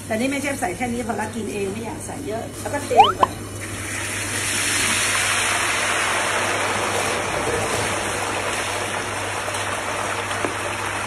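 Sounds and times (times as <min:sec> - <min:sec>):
hot oil sizzling in a wok: 0:03.8 - 0:11.0.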